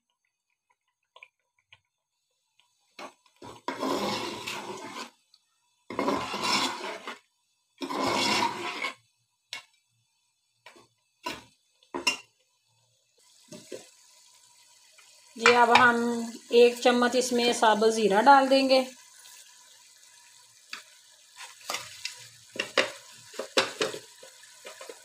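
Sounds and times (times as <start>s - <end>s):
meat frying in fat: 0.0s - 25.0s
ladle scraping metal pot: 3.0s - 5.2s, 5.9s - 7.2s, 7.8s - 9.0s.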